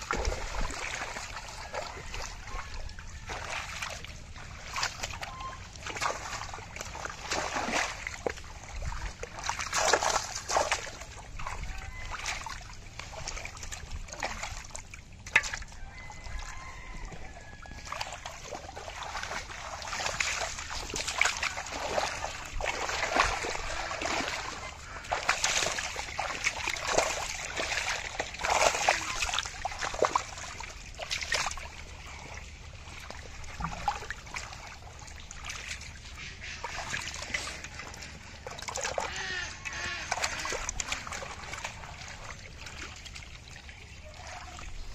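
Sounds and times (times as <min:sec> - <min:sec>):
metal pot scooping water: 0:00.0 - 0:44.9
muddy water splashing: 0:00.0 - 0:44.9.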